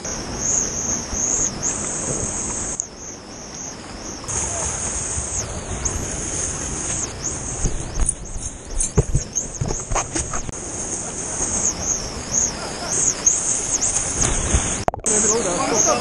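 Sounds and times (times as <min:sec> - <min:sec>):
river water rushing: 0:00.0 - 0:08.7.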